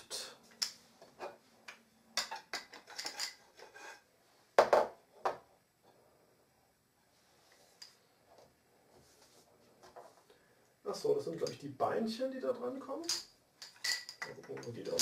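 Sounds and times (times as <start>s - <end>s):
wooden beads and rods clacking: 1.7s - 4.0s, 13.0s - 15.0s.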